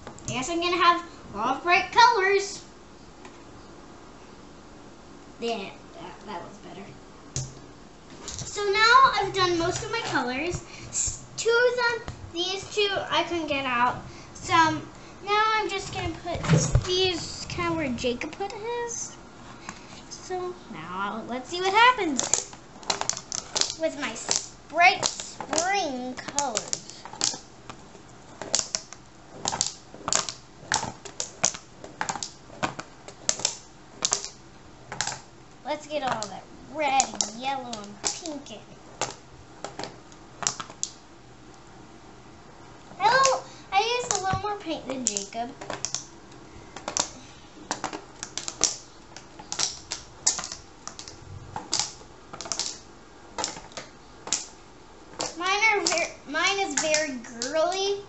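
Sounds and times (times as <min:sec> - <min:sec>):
marbles knocking on cardboard: 0:21.6 - 0:35.3, 0:46.8 - 0:57.8.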